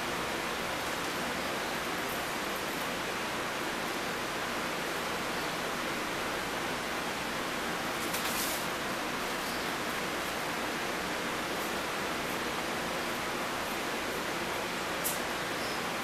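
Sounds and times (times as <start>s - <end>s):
steady background hiss: 0.0s - 16.0s
brief rustle: 8.0s - 8.7s.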